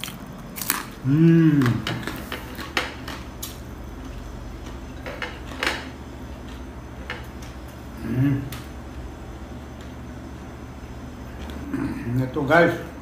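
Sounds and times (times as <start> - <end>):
crunching crispy pork skin: 0.0 - 1.0
steady low hum: 0.0 - 13.0.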